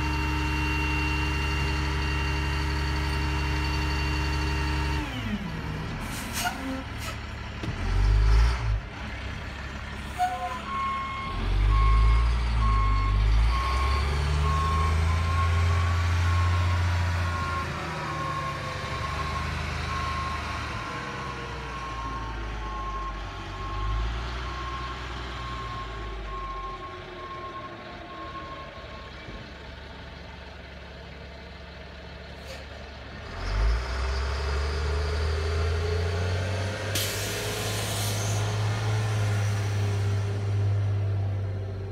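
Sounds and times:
truck engine revving: 0.0 - 9.9, 10.7 - 28.6, 33.2 - 41.9
reversing alarm beeping: 10.6 - 29.2.

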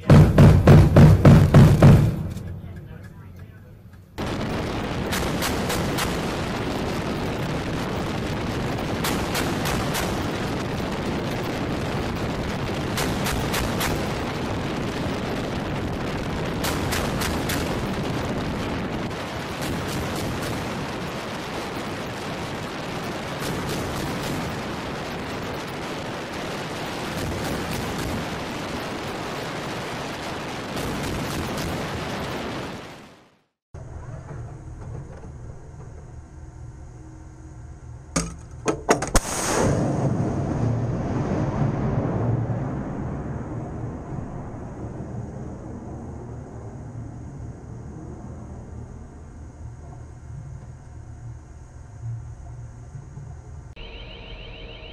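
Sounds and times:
steady rushing noise: 0.0 - 33.5, 39.2 - 53.8
deck gun firing rapid bursts: 5.0 - 6.5, 9.0 - 10.4, 12.8 - 14.3, 16.6 - 17.9.

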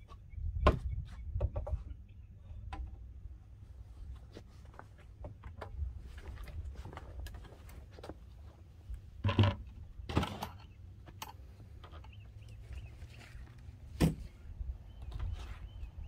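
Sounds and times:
bird chirping: 0.0 - 2.6, 11.8 - 13.6, 14.8 - 16.0
wind rumble on microphone: 0.0 - 2.8.

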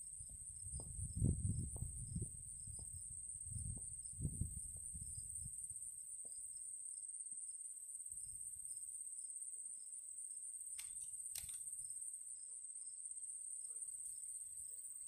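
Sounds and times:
insects droning in grass: 0.0 - 15.0
faint sharp clicks: 10.7 - 11.7.

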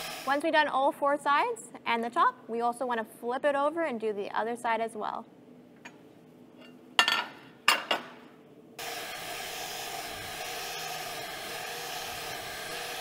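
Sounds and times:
metal plate clanking on table: 7.0 - 8.1
angle grinder grinding steel: 8.8 - 13.0.

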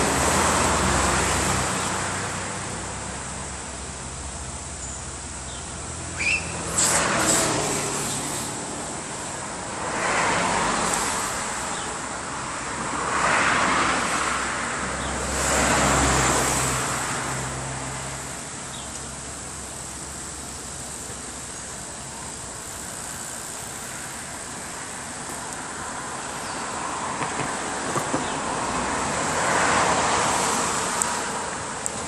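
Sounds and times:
vehicles passing: 0.0 - 32.0
soft traffic hiss: 15.9 - 32.0.

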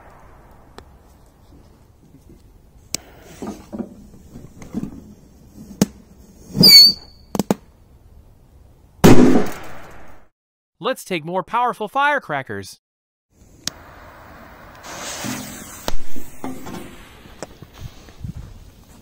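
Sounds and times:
noisy burst: 0.0 - 1.4, 13.4 - 18.2
short squeak: 6.6 - 7.3.

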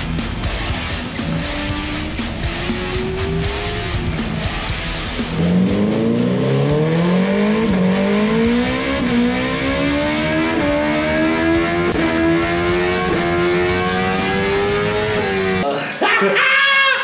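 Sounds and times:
motorcycle engine revving on dyno: 1.2 - 15.6.

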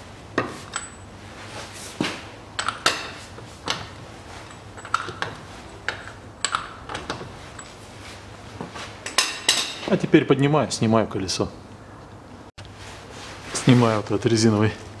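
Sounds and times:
wrench clinking on hub nut: 0.6 - 1.1, 2.6 - 7.8.

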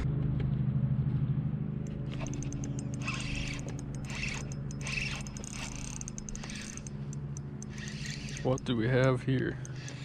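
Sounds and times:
steady low hum: 0.0 - 10.0
fishing reel ticking and whirring: 1.9 - 10.0
fishing reel being handled: 2.1 - 10.0.

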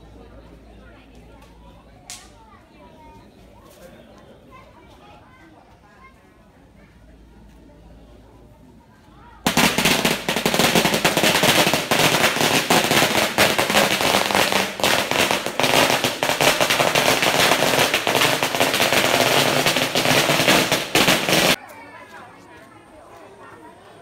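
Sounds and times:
firecrackers crackling: 9.5 - 21.6.

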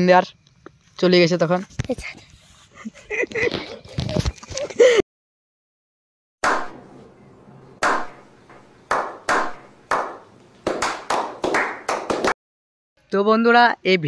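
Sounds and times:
hand claps with echo: 7.8 - 8.2, 8.9 - 12.4.

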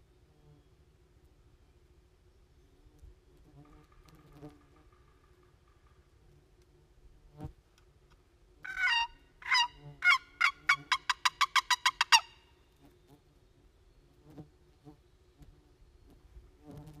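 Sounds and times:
turkey box call yelps: 8.7 - 12.4.

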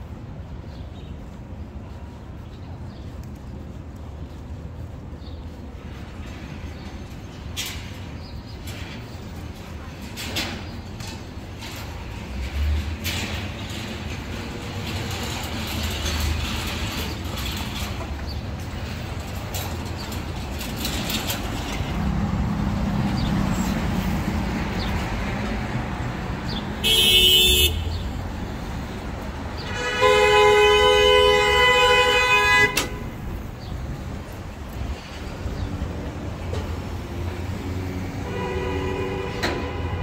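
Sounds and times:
street traffic: 0.0 - 40.0
vehicle horn honks: 26.8 - 28.0, 29.7 - 33.0, 38.2 - 40.0.

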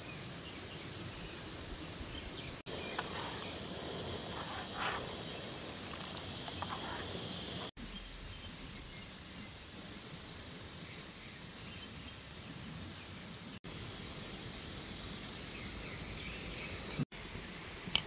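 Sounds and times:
gas stove hiss: 0.0 - 7.8, 13.6 - 17.1
insects: 0.0 - 12.4, 13.2 - 17.7.

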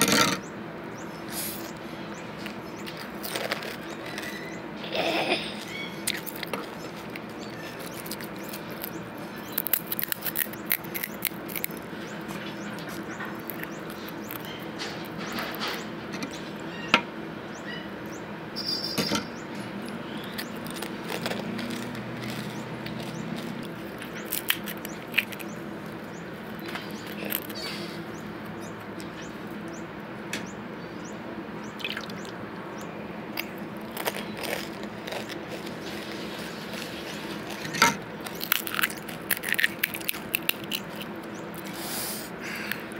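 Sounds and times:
steady low hum: 0.0 - 42.9
crisp shells crunching: 2.4 - 15.8, 19.8 - 29.6, 33.4 - 41.8.

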